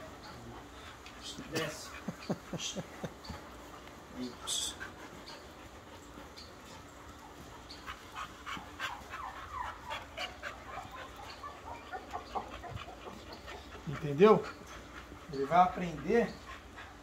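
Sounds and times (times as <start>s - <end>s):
dog whimpering: 8.6s - 14.7s.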